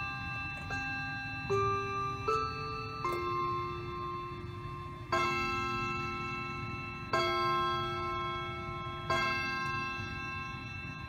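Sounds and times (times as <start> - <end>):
desk clock chiming: 0.0 - 11.0.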